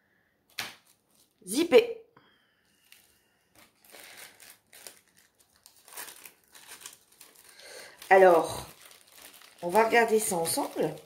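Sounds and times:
plastic bags crinkling: 0.5s - 1.4s, 2.8s - 11.0s.

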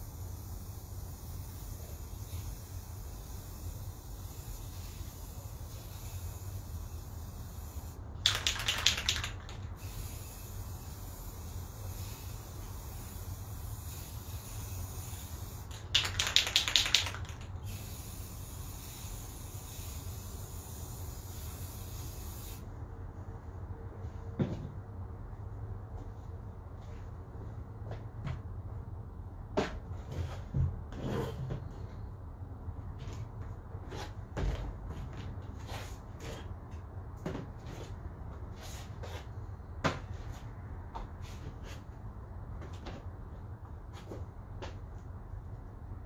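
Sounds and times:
aerosol spray can hissing: 0.0s - 22.6s.

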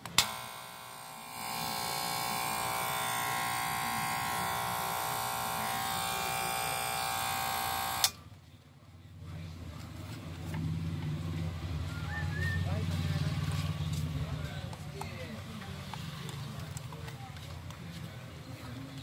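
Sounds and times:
electric hair clipper buzzing: 0.0s - 8.2s.

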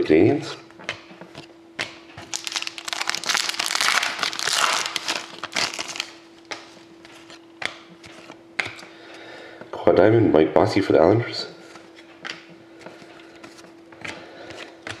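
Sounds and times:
trading cards rustling: 2.2s - 8.9s.

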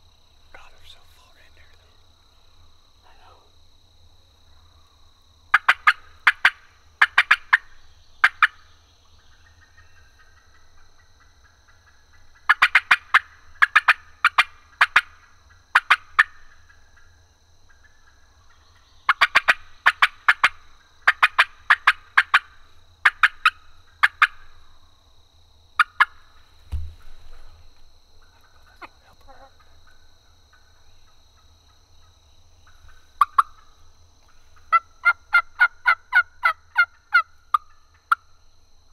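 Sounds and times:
wild turkey gobbling: 4.5s - 24.8s, 25.8s - 38.3s
low thump: 26.6s - 27.6s.

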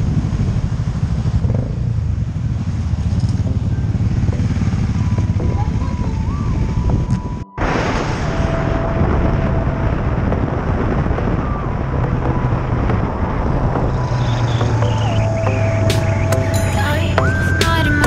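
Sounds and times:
motorcycle engine running: 0.0s - 7.4s, 8.6s - 18.0s
wind rushing over microphone: 0.0s - 18.0s.

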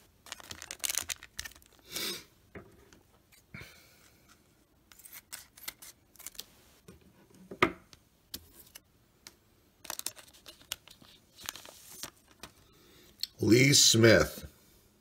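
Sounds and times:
foil wrapper crinkling: 0.0s - 1.9s, 9.8s - 12.6s.

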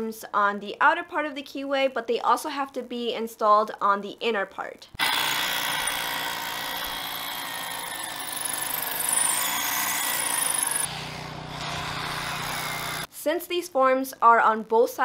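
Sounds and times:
construction machinery noise: 5.0s - 13.1s.

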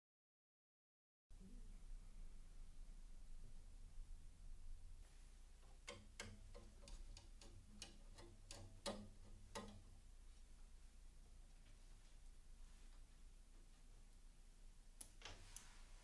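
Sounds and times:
screwdriver clicking on metal: 5.8s - 9.8s.

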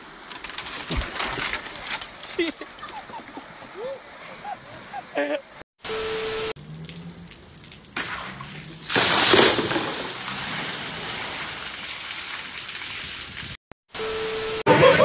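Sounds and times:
water gushing and splashing: 6.6s - 13.6s.

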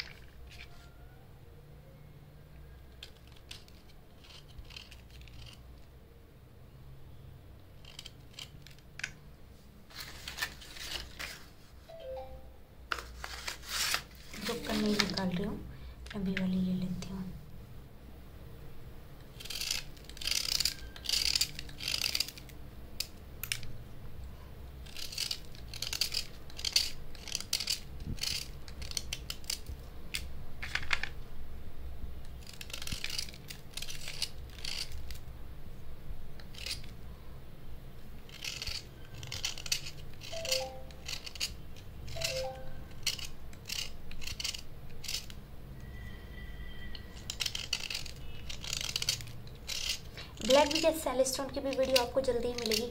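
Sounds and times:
knife scraping pencils: 2.9s - 5.9s, 7.8s - 9.1s, 13.0s - 17.1s, 19.3s - 23.7s, 24.8s - 31.1s, 32.2s - 35.2s, 36.4s - 37.0s, 38.2s - 52.9s.

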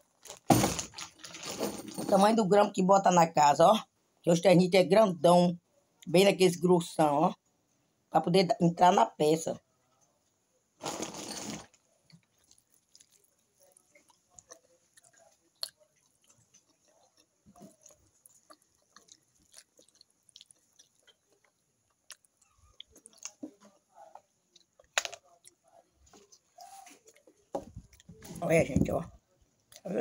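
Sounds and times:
person chewing: 11.7s - 28.3s.

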